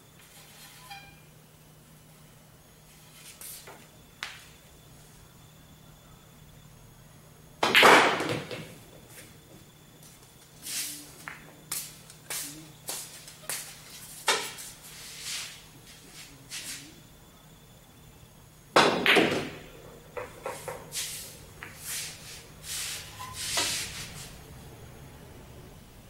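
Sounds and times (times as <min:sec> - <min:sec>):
low steady hum: 0:00.0 - 0:07.7, 0:08.6 - 0:26.0
cue striking pool balls: 0:07.6 - 0:08.8, 0:18.8 - 0:21.8
pool balls clicking: 0:07.6 - 0:09.2, 0:18.7 - 0:22.2.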